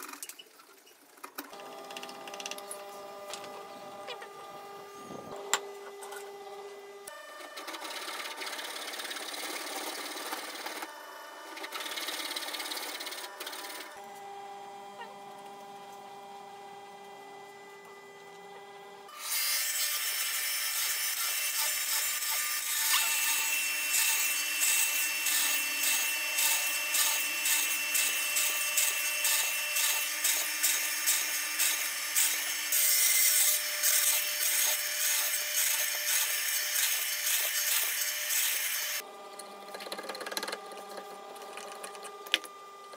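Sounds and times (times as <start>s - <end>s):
chisel boring into wood: 7.6s - 10.9s.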